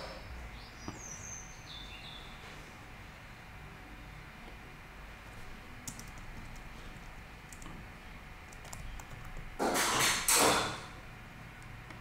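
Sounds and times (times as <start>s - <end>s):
keyboard keystroke clicks: 5.8s - 6.7s.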